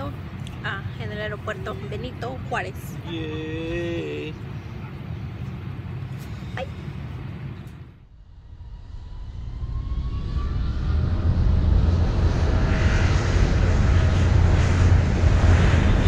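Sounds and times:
airliner cabin rumble: 0.0 - 16.0
faint rising whine: 0.0 - 16.0
jet engines spooling up: 5.6 - 16.0.

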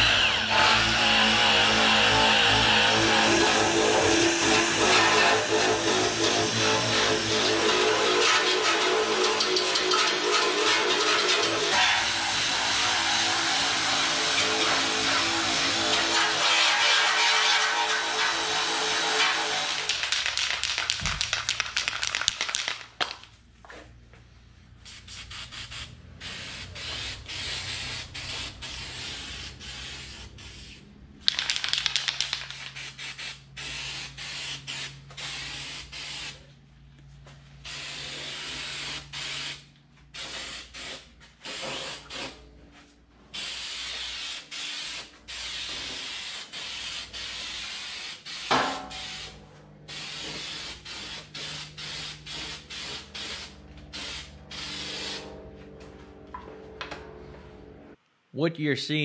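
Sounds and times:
aerosol spray can hissing: 19.2 - 23.2, 24.8 - 36.4, 43.4 - 55.2.

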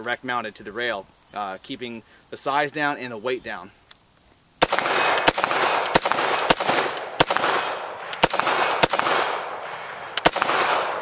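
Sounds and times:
gunshot echo: 4.6 - 11.0
rifle shots: 4.6 - 11.0.

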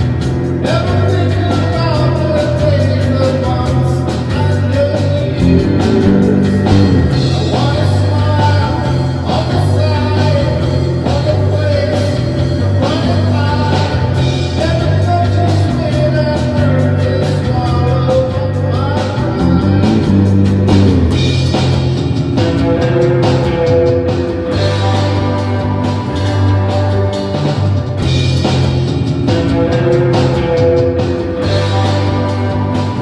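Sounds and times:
bass guitar: 0.0 - 33.0
echoing electric guitar: 5.2 - 9.5, 18.6 - 22.2
drum kit beat: 5.3 - 8.4, 19.3 - 22.6.

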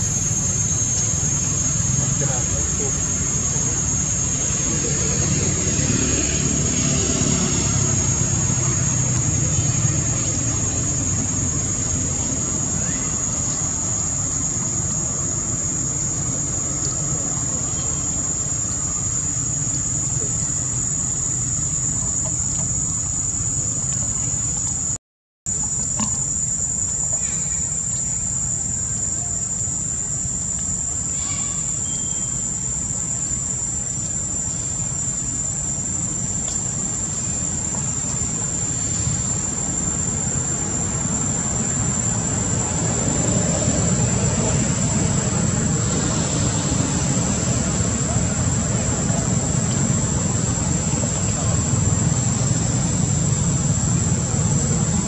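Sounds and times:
high-pitched insect drone: 0.0 - 55.0
low steady rumble: 27.8 - 55.0.

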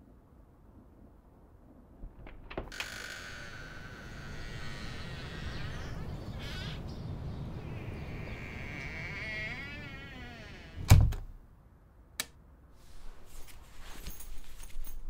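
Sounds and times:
outdoor sound: 0.0 - 15.0
door swinging open: 7.8 - 11.3.

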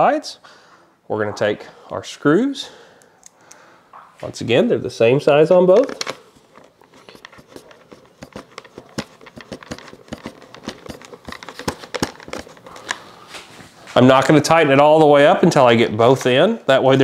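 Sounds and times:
screwdriver turning screws: 6.9 - 12.9.

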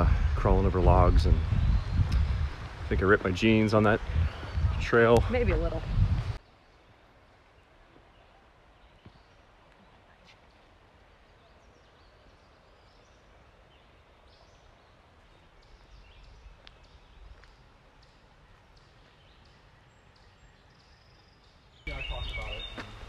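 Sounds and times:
low rumble: 0.0 - 6.4
faint high bird chirps: 11.4 - 23.0.

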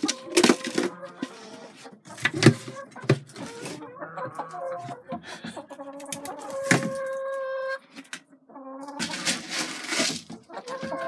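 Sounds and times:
hens moaning calls: 0.0 - 2.0, 2.6 - 7.9, 10.4 - 11.0.

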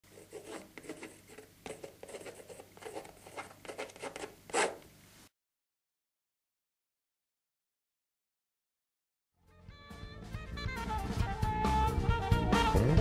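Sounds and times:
tool scraping paint on canvas: 0.1 - 4.9.

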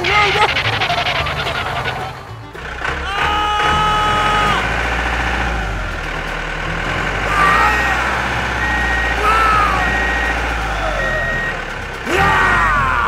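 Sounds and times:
engine rumble: 0.0 - 13.0
truck reversing alarm beeping: 3.6 - 13.0.

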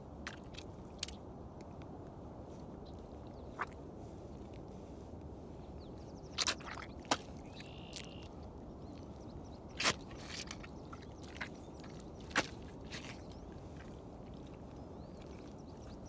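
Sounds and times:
boots squelching in mud: 0.2 - 1.2, 6.3 - 8.4, 9.7 - 16.0.

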